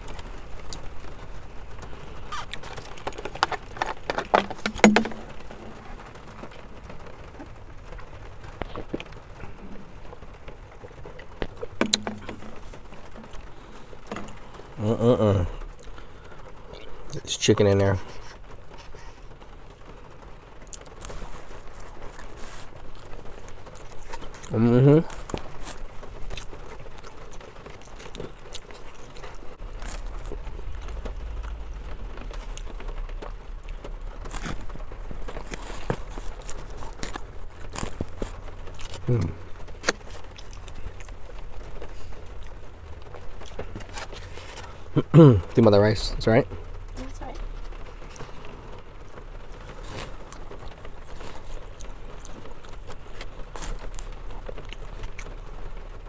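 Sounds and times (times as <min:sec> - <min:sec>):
rain pattering on car: 0:00.0 - 0:56.0
person chewing: 0:01.9 - 0:06.6, 0:10.8 - 0:14.6, 0:15.3 - 0:16.9, 0:20.6 - 0:45.2, 0:47.4 - 0:55.7
plastic spoon scraping foam box: 0:02.3 - 0:05.6
low hum: 0:28.7 - 0:55.9
low rumble: 0:29.1 - 0:52.1.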